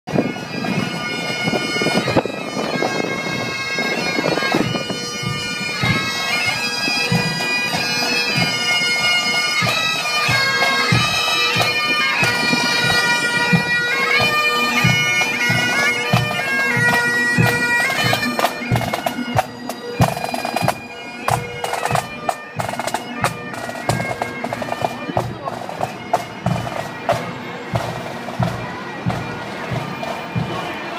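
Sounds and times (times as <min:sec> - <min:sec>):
bagpipes playing marching tune: 0:00.1 - 0:30.9
low drum beats: 0:14.8 - 0:30.9.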